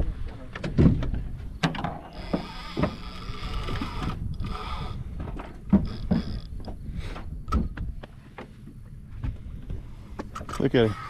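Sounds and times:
fishing reel whirring: 2.1 - 5.2.

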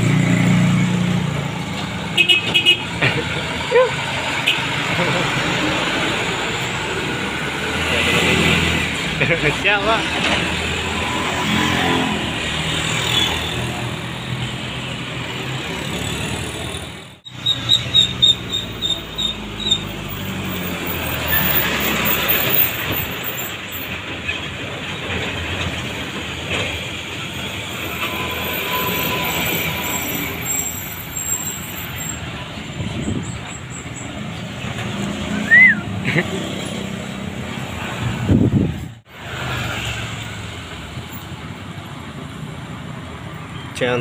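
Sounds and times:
diesel trucks driving past: 0.0 - 44.0
high pulsing squeal: 27.5 - 32.2.

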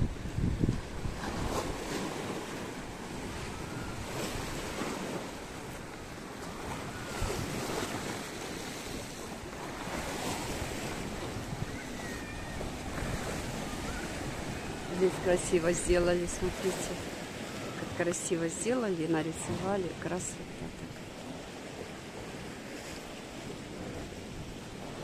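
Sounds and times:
wind rumbling on microphone: 0.0 - 18.8, 19.4 - 25.0
sea waves washing onto shore: 0.0 - 25.0.

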